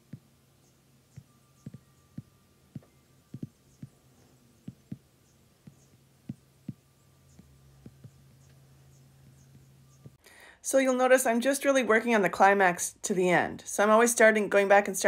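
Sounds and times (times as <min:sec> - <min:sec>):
low steady hum: 0:00.0 - 0:15.0
fingertip taps on touchscreen: 0:01.1 - 0:04.0, 0:04.6 - 0:08.2.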